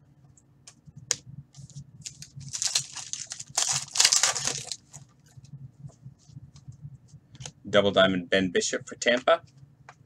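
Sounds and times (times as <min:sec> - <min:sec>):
foil wrapper crinkling and tearing: 0:02.0 - 0:05.0.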